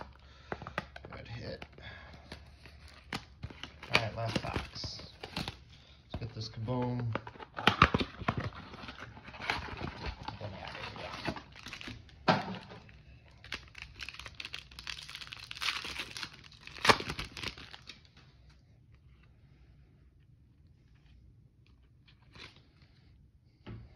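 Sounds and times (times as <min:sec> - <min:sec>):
foil packs crinkling and ripping: 0:02.8 - 0:05.6, 0:07.6 - 0:18.1.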